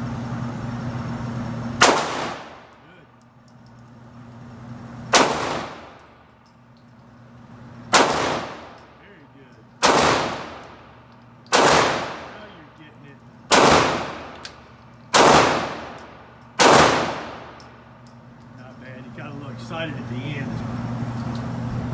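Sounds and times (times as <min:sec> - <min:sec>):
pistol shots echoing: 0:01.8 - 0:02.7, 0:05.1 - 0:06.0, 0:07.9 - 0:08.8, 0:09.8 - 0:10.8, 0:11.5 - 0:12.7, 0:13.5 - 0:17.6.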